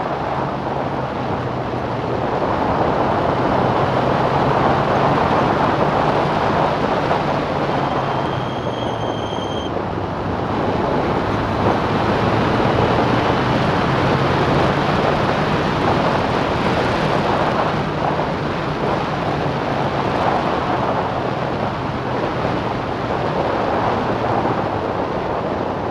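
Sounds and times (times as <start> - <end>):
wind rush over microphone: 0.0 - 25.9.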